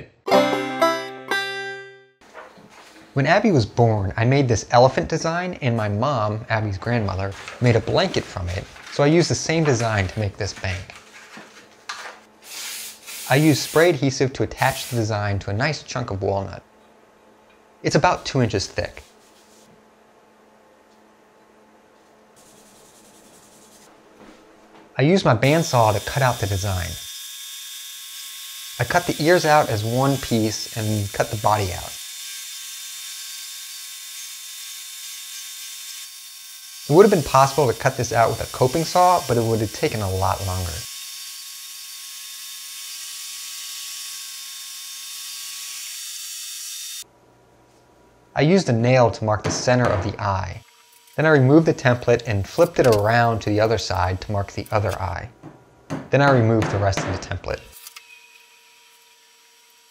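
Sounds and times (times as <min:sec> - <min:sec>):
high hiss: 0:12.4 - 0:14.0
hand rubbing paper on wood: 0:19.0 - 0:19.7, 0:22.4 - 0:23.9
bandsaw humming: 0:25.4 - 0:47.0, 0:49.4 - 0:55.2.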